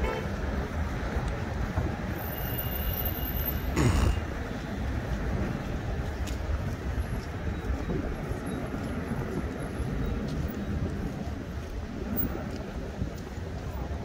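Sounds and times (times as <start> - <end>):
rumble of city traffic: 0.0 - 14.0.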